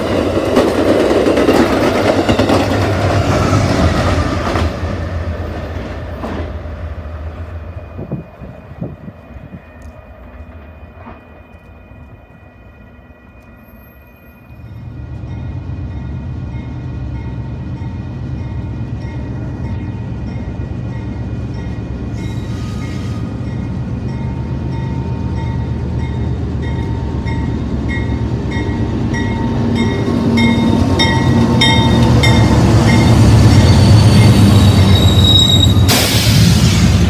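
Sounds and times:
crossing bell ringing: 7.7s - 35.8s.

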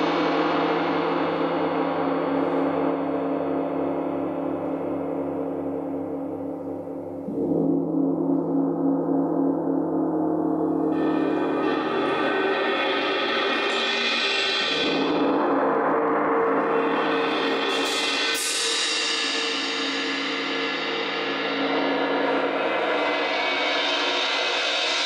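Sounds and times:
rolled gong and cymbal ringing: 0.0s - 25.0s.

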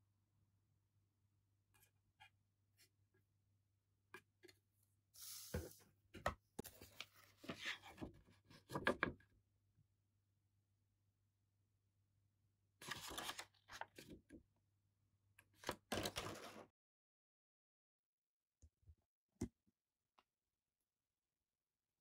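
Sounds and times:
paper sheet rustling: 12.8s - 13.9s.

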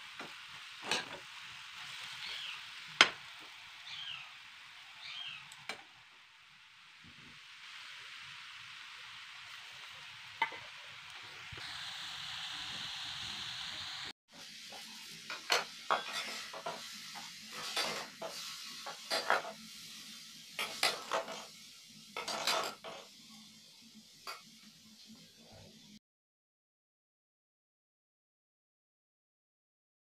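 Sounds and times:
food sizzling in a pan: 0.0s - 26.0s
spatula scraping and clinking on steel: 15.3s - 16.8s, 17.5s - 19.6s, 20.6s - 21.5s, 22.2s - 23.1s.

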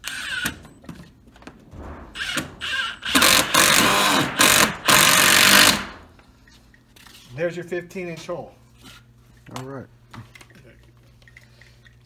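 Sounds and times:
cordless drill drilling into wood: 2.2s - 6.0s.

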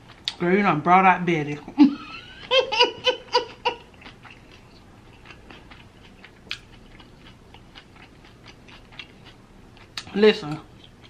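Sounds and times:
person chewing: 0.0s - 0.4s, 3.4s - 11.0s.

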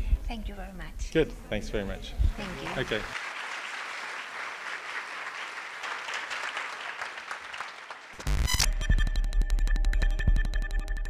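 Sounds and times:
audience applauding: 2.4s - 8.7s.

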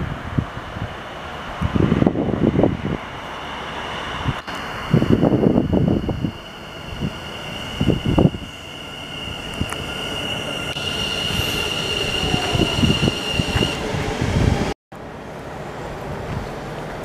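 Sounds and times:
wind noise: 0.0s - 14.8s
train brakes squealing: 3.6s - 14.6s.

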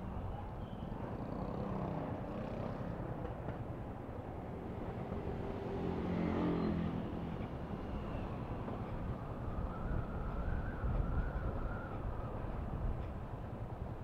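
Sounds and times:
wind on microphone: 8.7s - 14.0s.

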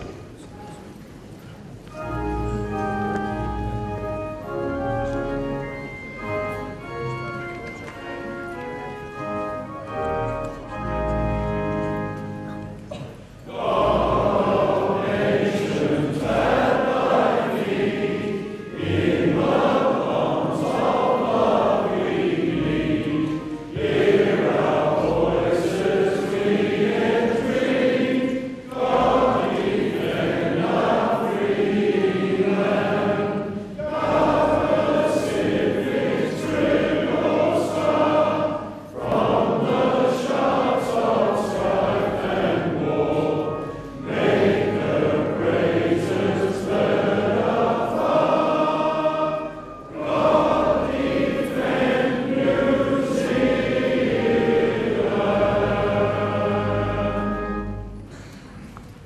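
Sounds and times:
choir singing: 12.9s - 58.2s.

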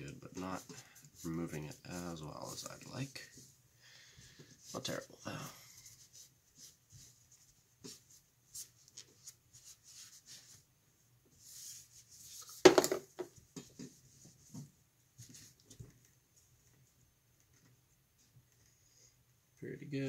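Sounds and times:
cloth rag rubbing on rifle: 0.1s - 3.6s, 4.3s - 10.7s, 11.3s - 12.7s.

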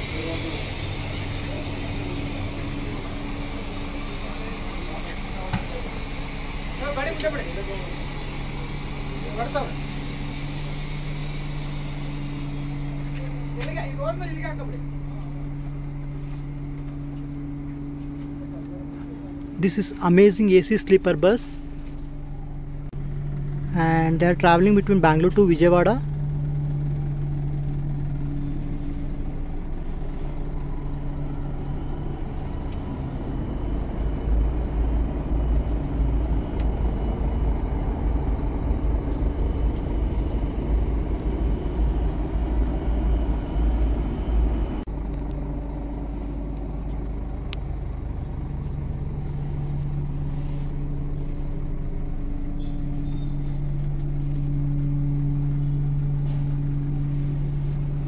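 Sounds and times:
bus engine and air conditioning hum: 0.0s - 58.0s
uneven low rumble: 26.0s - 58.0s.

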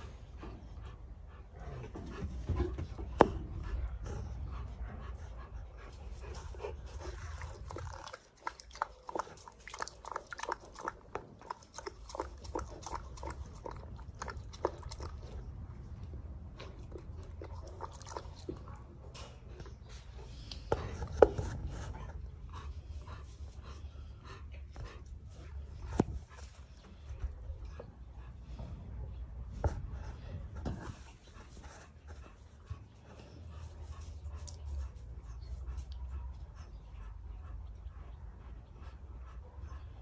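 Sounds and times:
animal lapping water: 6.9s - 15.7s, 16.7s - 18.8s.

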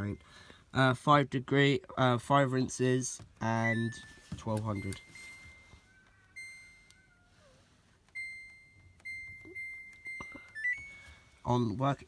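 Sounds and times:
washing machine panel beeps: 3.4s - 7.1s, 8.1s - 11.3s.

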